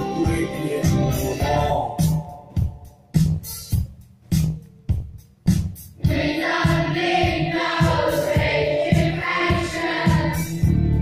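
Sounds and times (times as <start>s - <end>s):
band music with singing: 0.0s - 2.9s, 6.0s - 11.0s
bass and drum beat: 0.0s - 11.0s.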